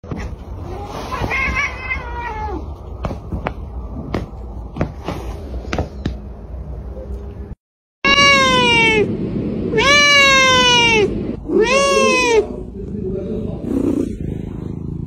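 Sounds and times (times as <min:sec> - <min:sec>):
cat meowing: 0:00.2 - 0:02.8, 0:08.0 - 0:09.1, 0:09.7 - 0:12.5
steady low rumble: 0:02.6 - 0:11.6, 0:12.5 - 0:15.0.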